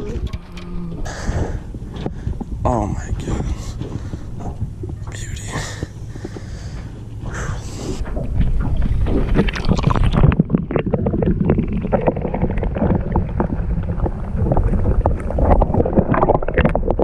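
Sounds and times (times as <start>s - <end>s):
dull underwater sound: 0.0s - 17.0s
water sloshing against camera: 0.0s - 17.0s.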